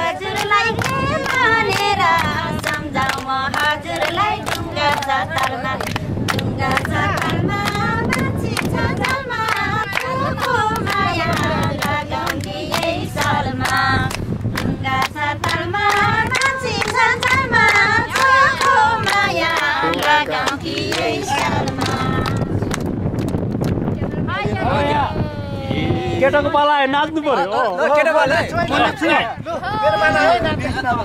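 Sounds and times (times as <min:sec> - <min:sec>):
group singing folk song: 0:00.0 - 0:23.0
hand claps: 0:00.2 - 0:23.8.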